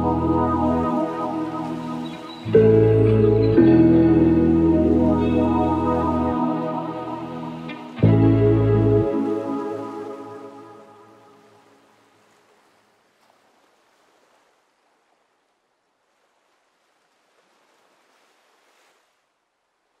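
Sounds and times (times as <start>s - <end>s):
guitar music: 0.0s - 11.2s.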